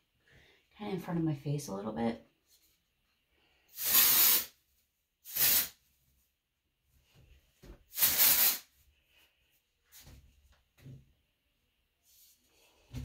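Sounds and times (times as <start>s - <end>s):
aerosol spray bursts: 3.7s - 4.6s, 5.3s - 5.8s, 7.9s - 8.7s.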